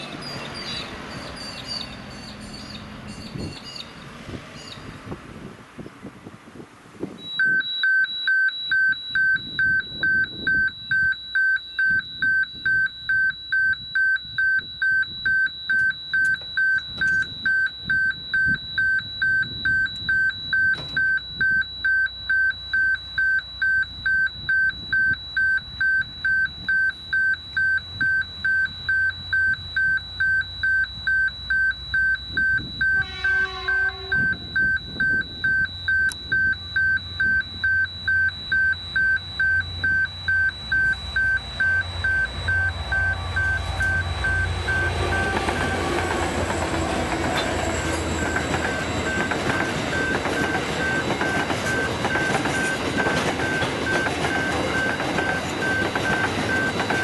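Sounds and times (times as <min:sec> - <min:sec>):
level crossing warning beeps: 0:07.2 - 0:57.0
locomotive horn blast: 0:33.0 - 0:34.5, 0:42.8 - 0:49.0
low engine rumble: 0:33.7 - 0:57.0.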